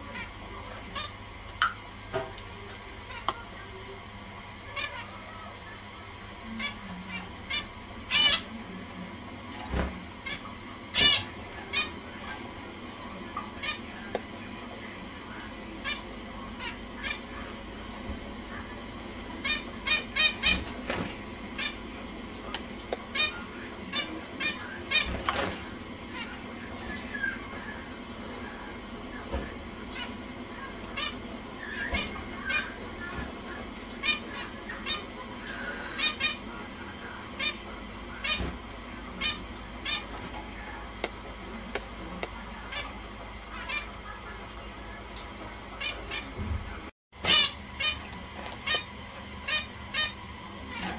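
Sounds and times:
finches honking calls: 0.0s - 1.3s, 4.6s - 8.6s, 10.2s - 14.0s, 15.0s - 17.8s, 18.7s - 22.0s, 23.1s - 40.9s, 47.2s - 50.9s.

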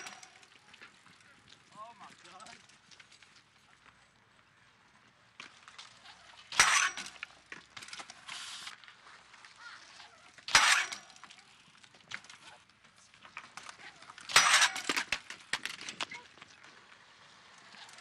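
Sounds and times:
small clicks and rattles: 0.0s - 4.2s, 5.4s - 18.0s
bike frame banging on concrete: 6.5s - 8.2s, 10.5s - 11.4s, 14.0s - 16.2s
scraping hiss: 8.2s - 8.8s.

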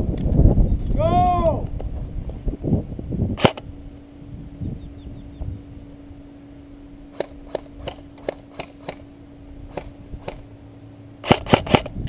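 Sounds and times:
airsoft gun shots: 3.4s - 3.7s, 7.1s - 9.1s, 9.7s - 10.4s, 11.2s - 12.0s.

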